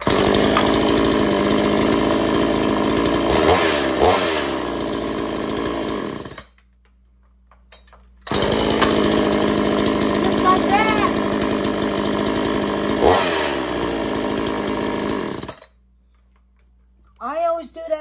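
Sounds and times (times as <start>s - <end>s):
chainsaw revving: 0.0s - 6.5s, 8.3s - 15.7s.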